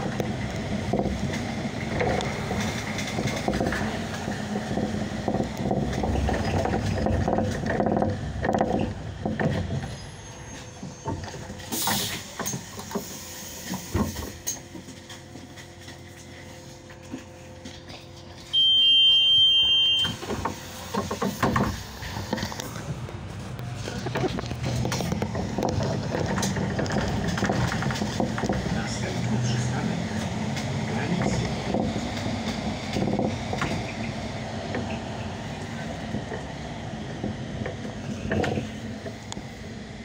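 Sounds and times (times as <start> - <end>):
clattering and knocking: 0.0 - 10.0, 20.0 - 23.1, 23.8 - 34.0, 37.2 - 39.2
bus engine hum: 0.0 - 40.0
bus door warning beep: 18.5 - 20.5.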